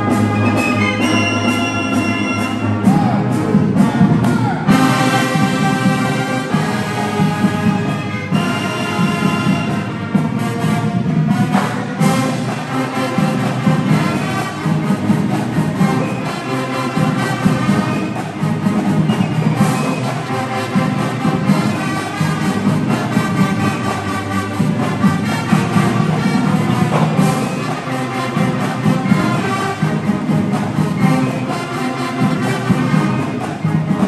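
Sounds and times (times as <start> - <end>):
brass instruments: 0.0 - 34.0
marching band playing: 0.0 - 34.0.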